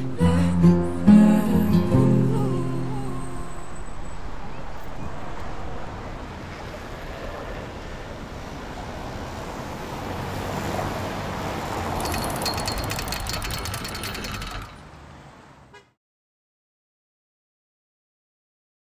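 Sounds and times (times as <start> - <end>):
city street traffic: 0.0 - 16.0
fast rattling tick: 12.0 - 15.0.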